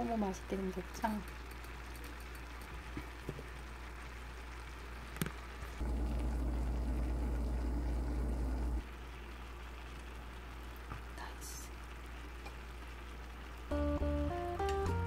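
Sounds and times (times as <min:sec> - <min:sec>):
steady low hum: 0:05.7 - 0:14.0
faint steady hiss: 0:07.4 - 0:15.0.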